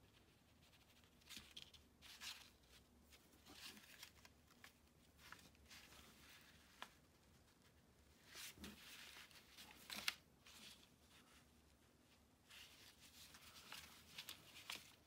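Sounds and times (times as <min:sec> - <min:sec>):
yarn rustling through fabric: 0:00.0 - 0:15.0.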